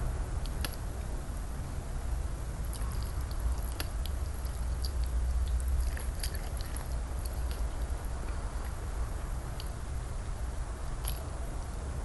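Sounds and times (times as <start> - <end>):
steady low hum: 0.0 - 12.0
wet chewing and mouth smacks: 2.6 - 9.8.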